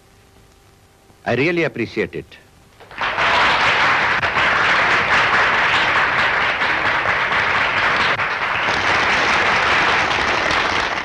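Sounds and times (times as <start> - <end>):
crowd applauding: 2.8 - 11.0.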